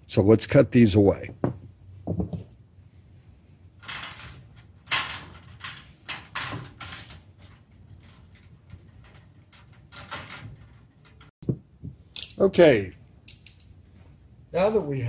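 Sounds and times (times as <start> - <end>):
wires scraping sheet metal: 3.8 - 11.3.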